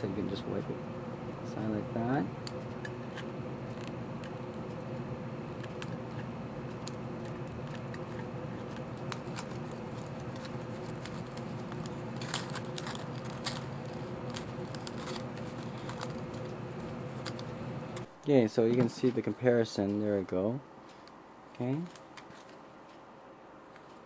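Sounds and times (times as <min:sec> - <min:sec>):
steady low hum: 0:00.0 - 0:24.0
aluminium foil crinkling: 0:05.6 - 0:17.6.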